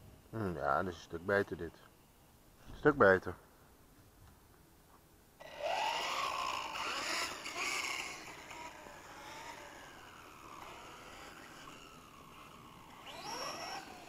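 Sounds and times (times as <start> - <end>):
electric motor whining: 5.4 - 14.0.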